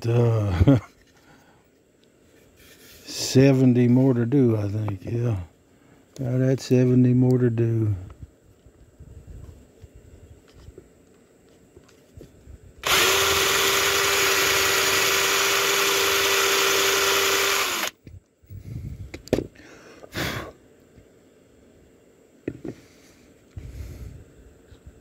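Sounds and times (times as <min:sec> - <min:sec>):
power drill boring into wood: 0:12.8 - 0:18.0.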